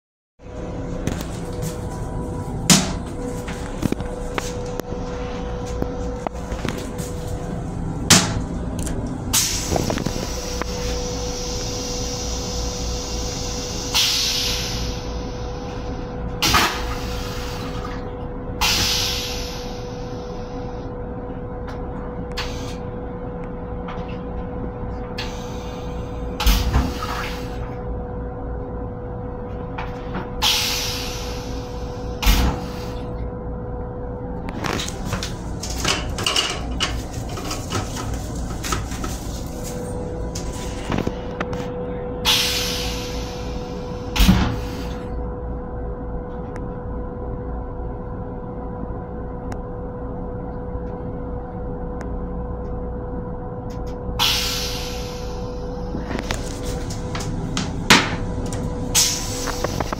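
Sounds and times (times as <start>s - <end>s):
railcar running hum: 0.4s - 59.9s
hiss: 9.4s - 15.1s, 18.6s - 20.0s, 30.4s - 31.8s, 42.3s - 43.8s, 54.2s - 55.5s.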